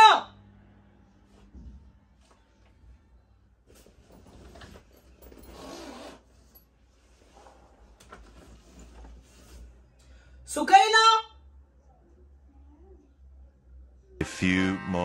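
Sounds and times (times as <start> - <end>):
fabric bag zipping and rustling: 3.8 - 6.6.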